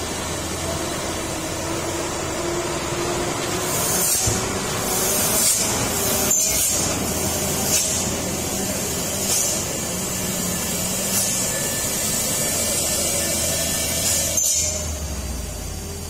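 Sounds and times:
diesel truck engines droning: 0.0s - 16.0s
air brakes hissing: 3.5s - 15.4s.

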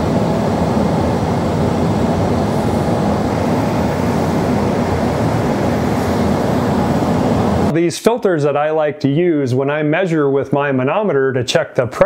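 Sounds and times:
furnace blower rushing air: 0.0s - 7.8s.

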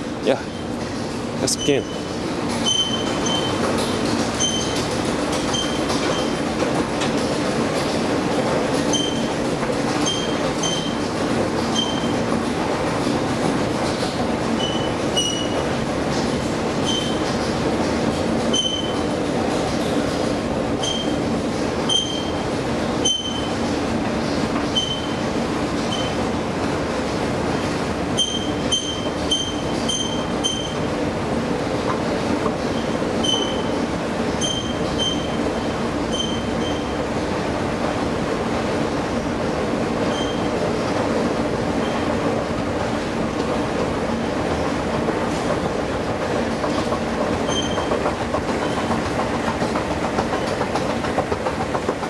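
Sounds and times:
escalator mechanical hum: 0.0s - 52.0s
short high squeaks: 1.5s - 3.6s, 4.4s - 4.8s, 5.5s - 6.4s, 8.9s - 9.3s, 10.0s - 11.0s, 11.7s - 12.2s, 14.6s - 15.6s, 16.8s - 17.2s, 18.5s - 19.1s, 20.8s - 21.2s, 21.9s - 22.4s, 23.0s - 23.5s, 24.7s - 25.2s, 28.2s - 30.9s, 32.7s - 33.7s, 34.4s - 35.4s, 36.1s - 37.0s, 40.1s - 40.5s, 47.4s - 48.0s.

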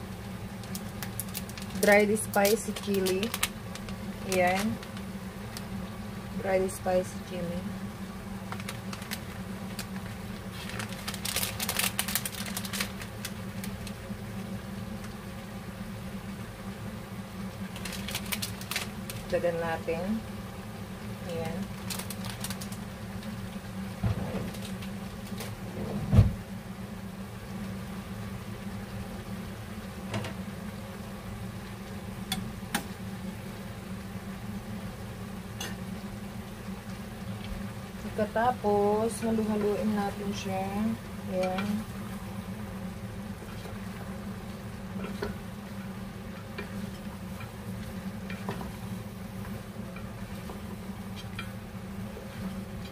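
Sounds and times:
steady low hum: 0.0s - 52.9s
plastic bag crinkling: 0.6s - 5.7s, 8.5s - 14.0s, 17.7s - 19.3s, 21.6s - 22.9s, 24.3s - 25.4s.

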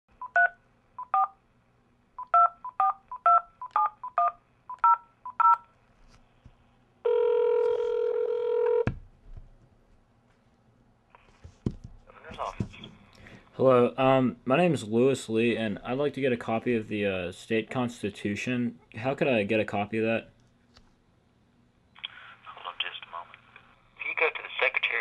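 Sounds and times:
telephone keypad beeps: 2.2s - 5.6s
telephone ringing tone: 7.0s - 8.9s.

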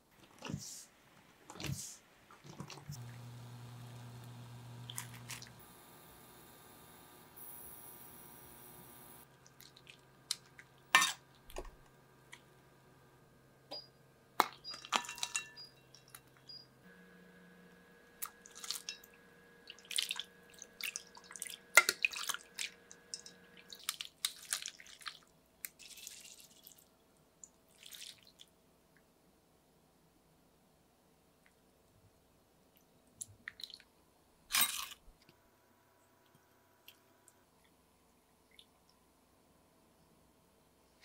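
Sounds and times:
faint steady hum: 0.2s - 14.9s, 15.6s - 23.9s
metal strainer clinking on glass: 14.7s - 16.1s
water dripping and splashing: 27.4s - 28.4s.

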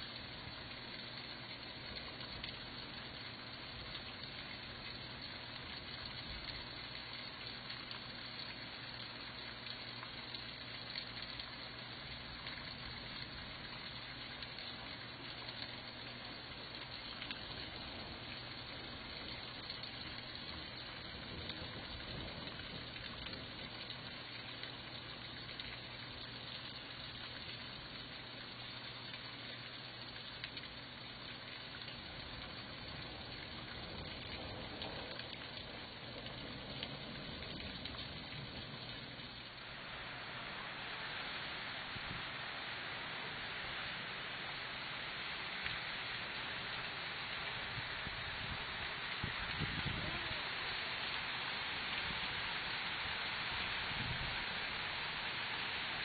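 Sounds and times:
heavy rain: 12.2s - 27.0s, 31.1s - 56.0s
floodwater rushing: 31.4s - 56.0s.

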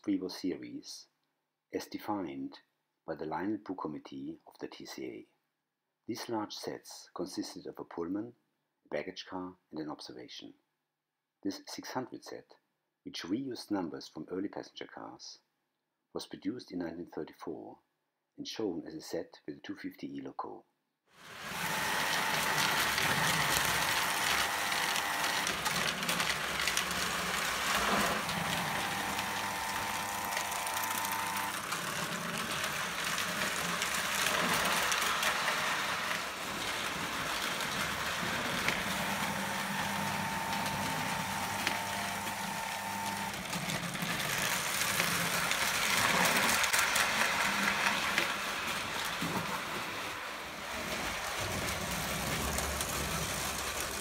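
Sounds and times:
toy train wheels clattering: 21.4s - 40.6s, 50.5s - 54.0s.

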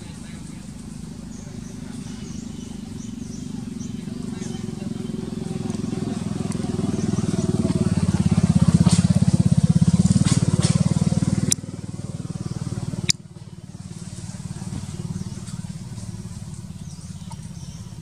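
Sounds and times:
small engine running: 0.0s - 18.0s
sharp clicks: 11.4s - 11.7s.

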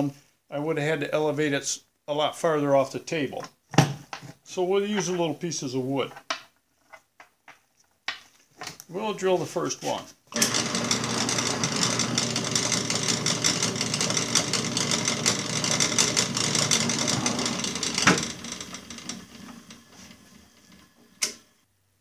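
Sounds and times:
drill press drilling metal: 10.3s - 21.4s.

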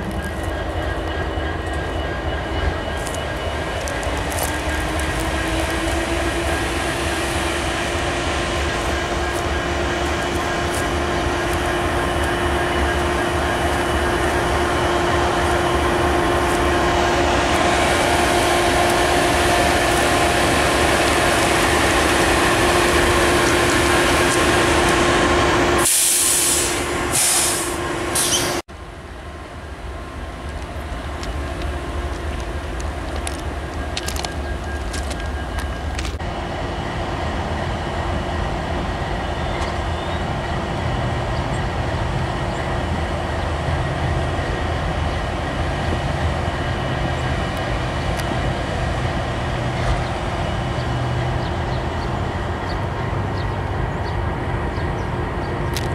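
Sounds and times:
diesel locomotive engine whine: 0.0s - 55.9s
wheels rumbling on rail: 0.0s - 55.9s
short hissing bursts: 25.8s - 28.5s.

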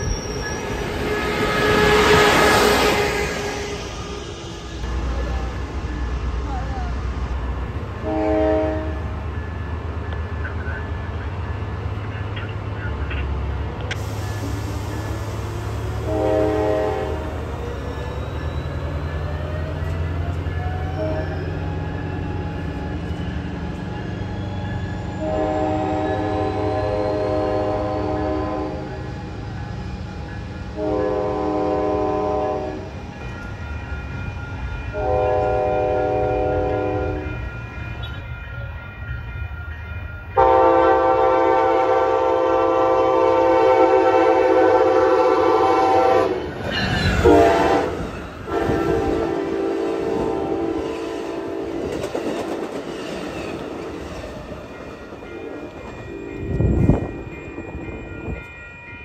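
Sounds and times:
clickety-clack of passing train cars: 0.0s - 59.0s
train low rumble: 0.0s - 59.0s
train horn blasts: 0.8s - 3.9s, 8.0s - 9.2s, 15.9s - 17.4s, 20.9s - 21.6s, 25.2s - 29.1s, 30.7s - 32.9s, 34.9s - 37.4s, 40.4s - 46.5s, 47.1s - 52.0s.

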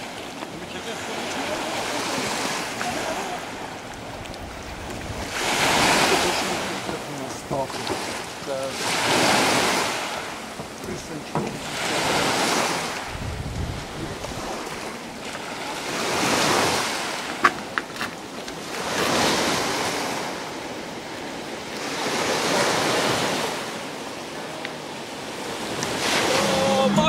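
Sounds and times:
waves washing onto pebbly shore: 0.0s - 27.0s
wind on microphone: 2.0s - 6.8s, 12.1s - 15.2s, 25.2s - 27.0s.

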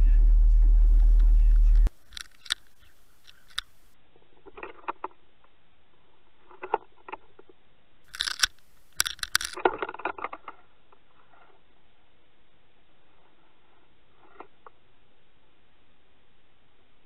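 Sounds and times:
faint steady hiss: 0.0s - 6.6s, 7.5s - 17.0s
clicking and crackling underwater: 2.0s - 3.9s, 8.1s - 10.4s.

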